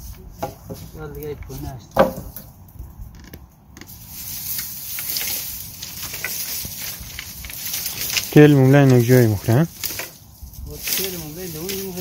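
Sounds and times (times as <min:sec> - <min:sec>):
steady high hiss: 0:03.8 - 0:12.0.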